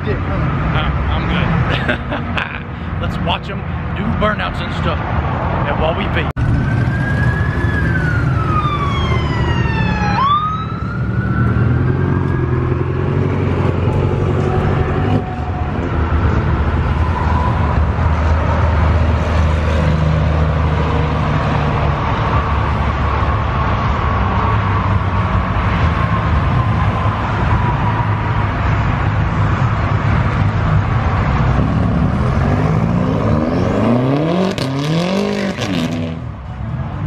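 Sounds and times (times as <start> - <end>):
car engine accelerating: 31.3 - 36.4.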